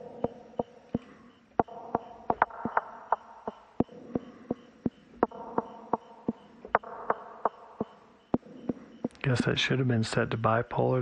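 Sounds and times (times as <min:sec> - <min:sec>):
sharp pitched synth knocks with delay: 0:05.2 - 0:08.6.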